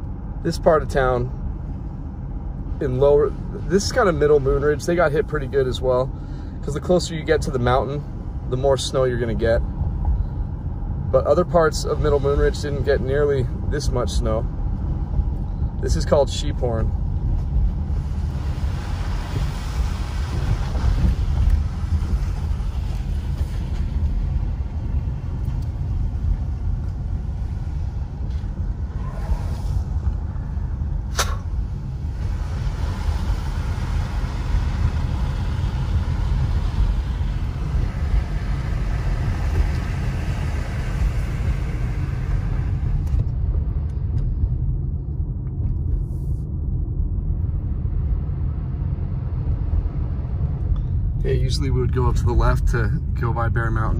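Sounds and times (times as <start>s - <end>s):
car driving on wet pavement: 0.0s - 44.6s
sharp click: 31.1s - 31.5s.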